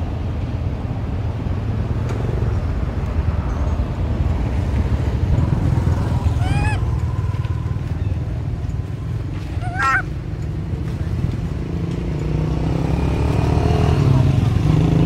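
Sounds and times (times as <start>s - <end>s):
macaque call: 6.3s - 6.9s, 9.6s - 10.1s.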